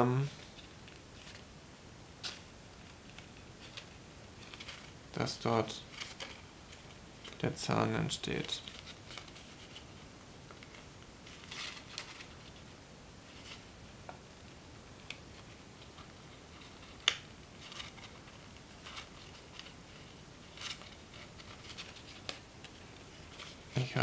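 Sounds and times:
paper crinkling: 8.4s - 12.7s, 15.1s - 23.9s.

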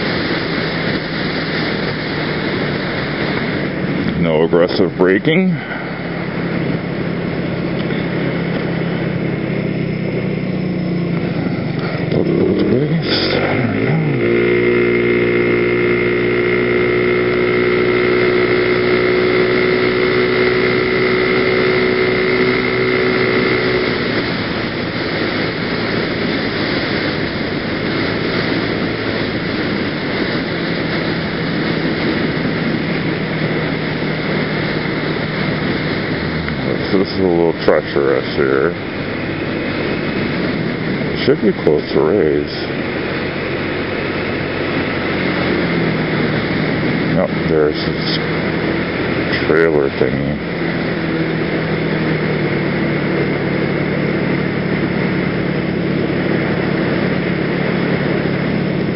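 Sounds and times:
scooter engine running: 0.0s - 58.9s
wind and road noise: 0.0s - 58.9s.

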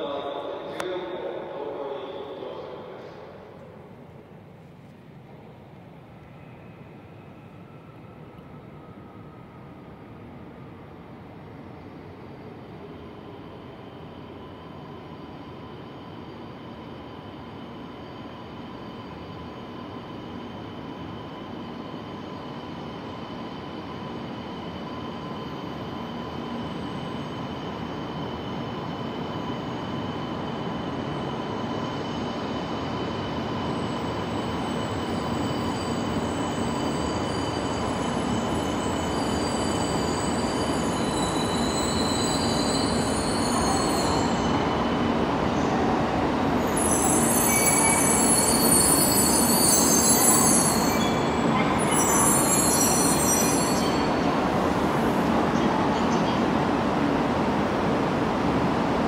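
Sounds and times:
train running noise: 11.8s - 59.0s
high squeal: 14.0s - 45.8s, 46.6s - 55.3s.

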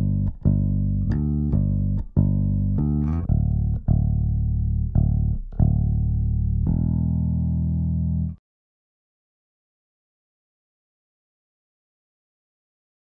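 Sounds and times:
bass guitar plucked notes: 0.0s - 8.4s.

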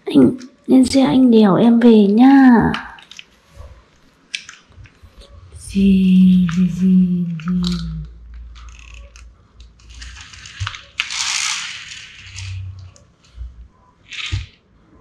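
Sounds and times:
plastic toys clicking and rattling: 2.7s - 3.3s, 6.4s - 13.1s, 14.0s - 14.6s
toy scraping on floor: 9.9s - 13.0s.

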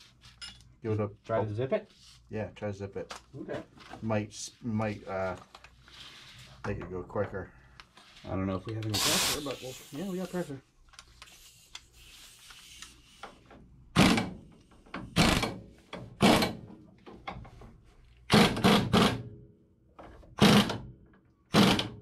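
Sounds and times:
air impact wrench bursts: 8.9s - 10.5s, 14.0s - 14.4s, 15.0s - 15.6s, 16.2s - 16.6s, 18.3s - 19.2s, 20.4s - 20.8s, 21.5s - 22.0s.

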